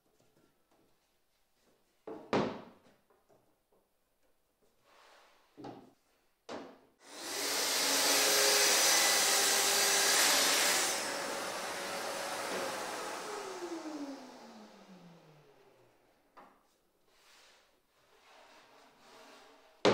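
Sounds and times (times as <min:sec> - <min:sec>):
circular saw cutting wood: 0:07.0 - 0:16.0
dust extractor humming: 0:07.0 - 0:16.1.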